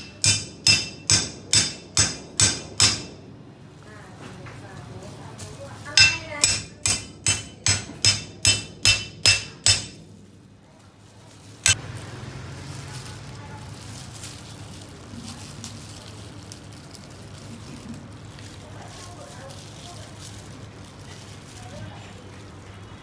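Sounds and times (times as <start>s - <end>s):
cleaver striking cleaver: 0.0s - 3.2s, 6.0s - 10.0s.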